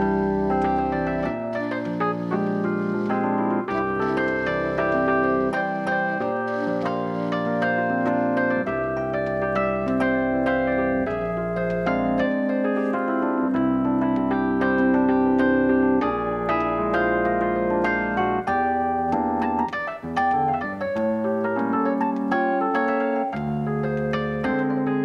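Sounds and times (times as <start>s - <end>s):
piano music: 0.0s - 25.0s.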